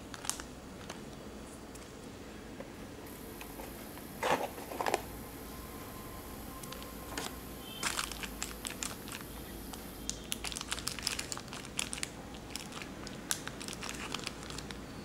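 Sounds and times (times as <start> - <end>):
plastic sheet crinkling: 0.0 - 1.0, 3.5 - 5.1, 6.6 - 14.8.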